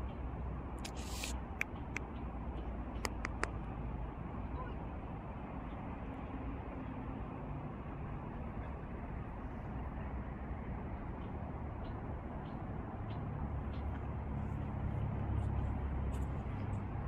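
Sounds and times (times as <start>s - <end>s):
sharp clicks: 3.0s - 3.6s.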